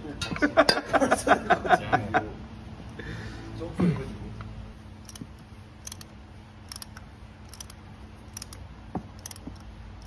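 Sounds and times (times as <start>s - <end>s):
steady low hum: 0.0s - 10.0s
hand tool metallic clicks: 5.0s - 10.0s.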